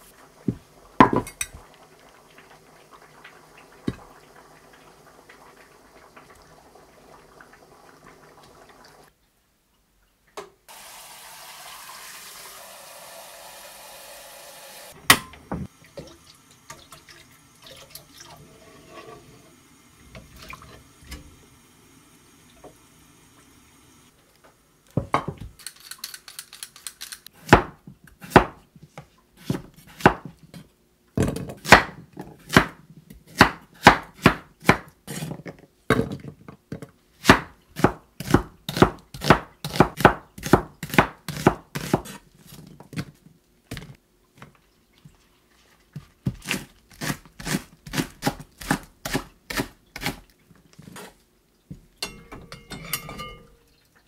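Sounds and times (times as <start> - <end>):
running water: 0.0 - 9.1, 10.7 - 24.1.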